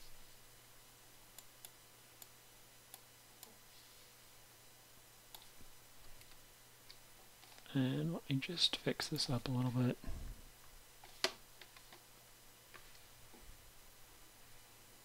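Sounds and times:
computer mouse clicks: 5.3s - 5.6s.

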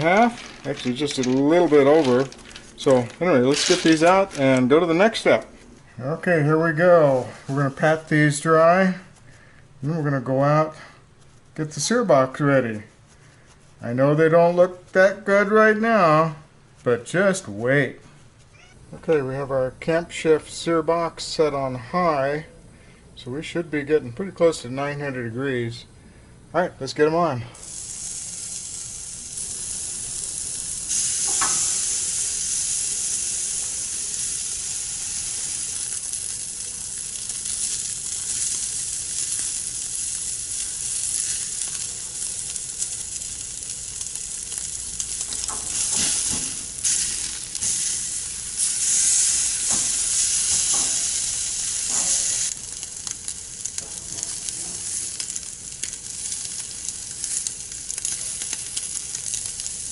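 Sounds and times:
meat sizzling on grill: 0.0s - 5.4s, 27.6s - 59.9s.

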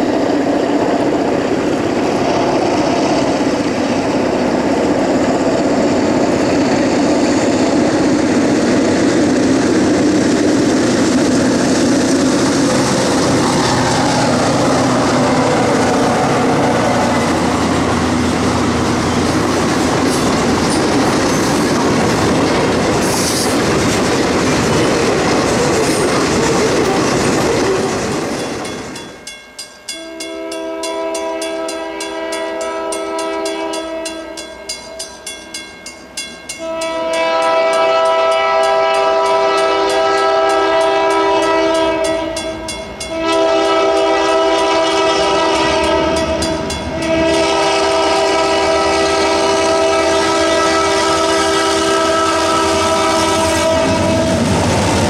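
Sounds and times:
freight cars rumbling on rails: 0.0s - 29.2s, 37.6s - 55.0s
locomotive air horn blasts: 30.0s - 34.4s, 36.6s - 54.5s.

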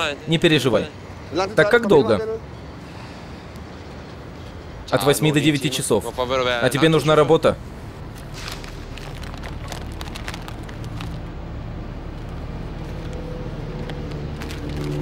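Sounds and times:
street traffic hum: 0.0s - 15.0s
newspaper pages rustling: 8.1s - 15.0s.

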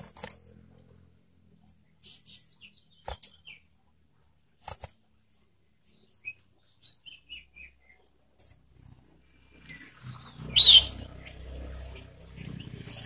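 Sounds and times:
bird chirping in falling runs: 1.7s - 3.8s, 5.7s - 8.6s.

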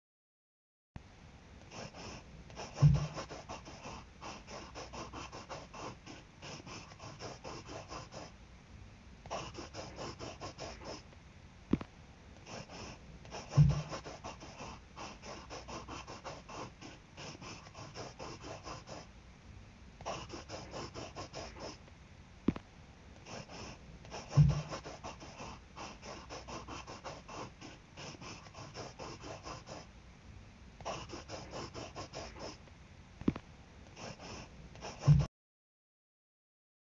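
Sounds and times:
scratchy drawing strokes: 1.7s - 8.4s, 9.3s - 11.1s, 12.4s - 19.1s, 20.0s - 21.8s, 23.2s - 29.9s, 30.8s - 32.6s, 33.9s - 35.3s
dull low thump: 2.8s - 3.2s, 13.6s - 13.9s, 24.4s - 24.7s, 35.1s - 35.3s.

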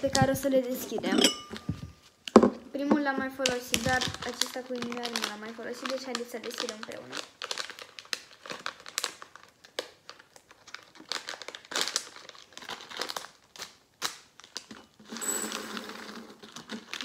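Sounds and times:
packet tearing rustle: 3.4s - 17.0s
sugar packet crinkling: 3.4s - 17.0s.

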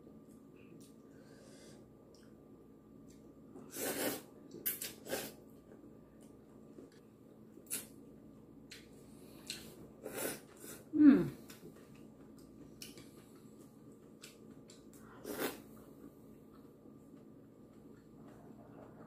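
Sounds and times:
faint steady hum: 0.0s - 19.0s
person slurping noodles: 3.7s - 5.4s, 15.2s - 15.6s.

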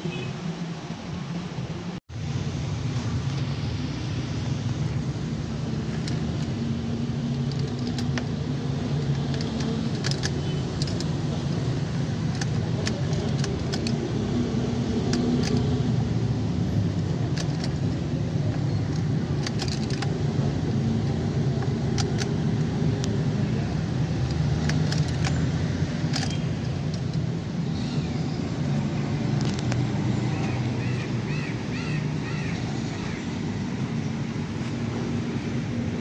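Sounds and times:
light metallic clicks: 5.8s - 15.9s, 17.2s - 20.2s, 21.3s - 23.3s, 24.2s - 27.3s
car keys jangling: 7.3s - 8.4s, 9.0s - 11.3s, 18.9s - 20.1s, 24.3s - 25.4s, 26.0s - 27.2s.

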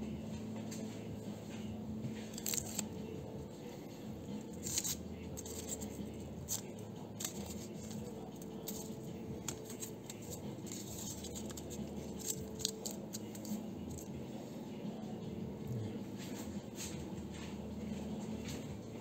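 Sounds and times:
steady low hum: 0.0s - 19.0s
tape being cut and handled: 2.0s - 3.6s, 4.2s - 14.2s.

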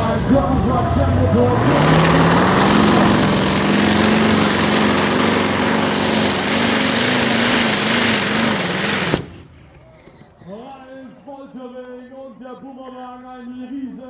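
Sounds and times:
tractor engine at full load: 0.0s - 11.0s.

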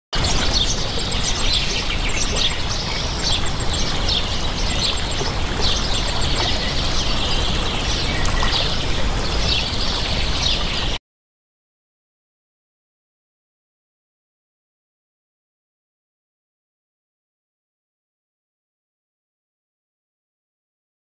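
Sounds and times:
birds chirping: 0.2s - 11.0s
fast-flowing river rushing: 0.2s - 11.0s.

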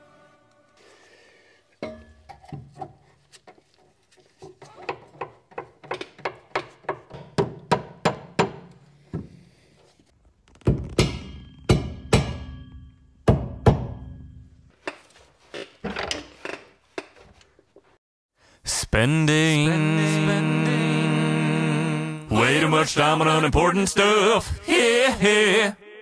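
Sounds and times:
hammer knocking on metal: 11.0s - 14.4s.

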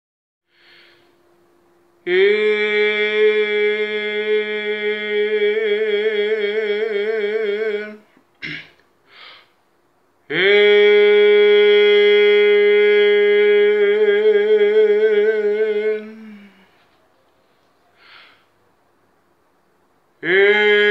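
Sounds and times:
person singing sustained note: 2.0s - 8.1s, 10.3s - 16.8s.

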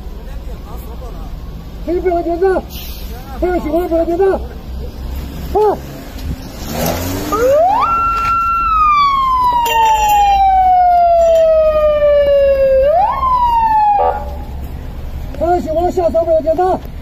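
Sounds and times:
police siren wailing: 7.3s - 14.6s.

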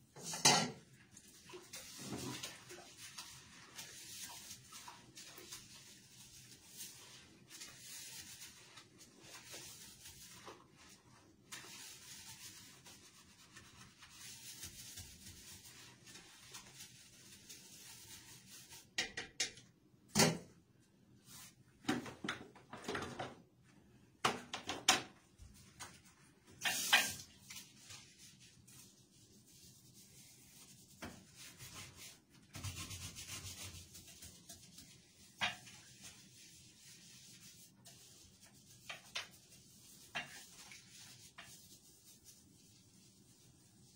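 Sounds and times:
toilet bowl scrubbing: 0.0s - 19.0s, 25.2s - 43.9s
objects knocking and clattering: 24.2s - 25.2s.

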